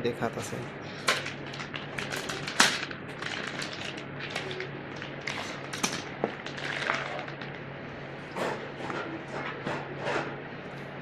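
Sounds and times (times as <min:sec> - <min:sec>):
plastic pouch crinkling: 0:01.2 - 0:07.6.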